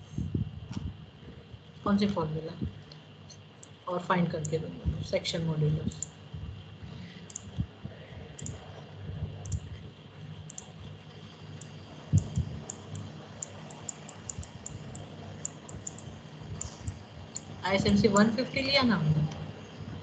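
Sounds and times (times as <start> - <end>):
computer mouse clicking: 5.9 - 6.1, 7.3 - 7.6, 8.4 - 8.6, 9.4 - 9.7, 10.5 - 10.7, 11.6 - 17.5.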